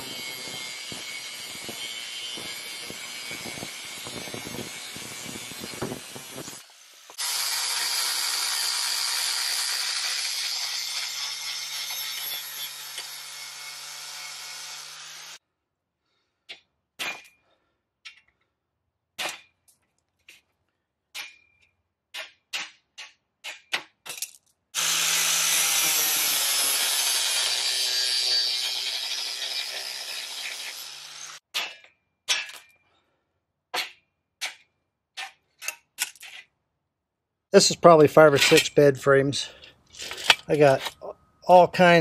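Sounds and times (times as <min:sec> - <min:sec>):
angle grinder cutting steel: 0:00.0 - 0:15.4, 0:24.8 - 0:31.4.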